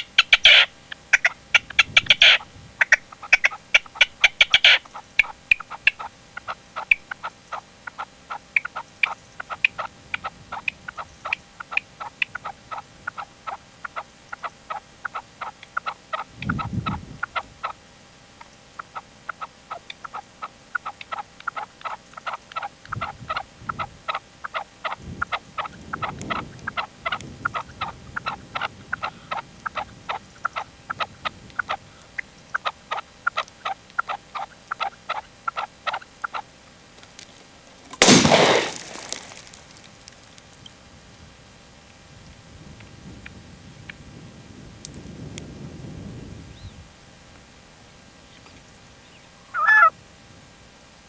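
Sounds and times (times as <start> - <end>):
partridge calling: 0.0 - 17.8, 18.4 - 36.6, 48.3 - 49.9
shotgun shot: 38.0 - 39.5.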